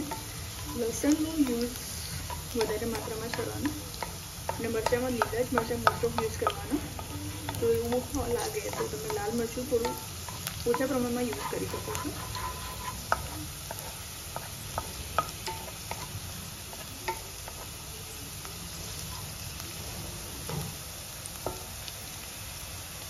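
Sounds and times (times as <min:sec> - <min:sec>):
food sizzling in oil: 0:00.0 - 0:23.0
spatula clinking against pan: 0:02.2 - 0:16.2.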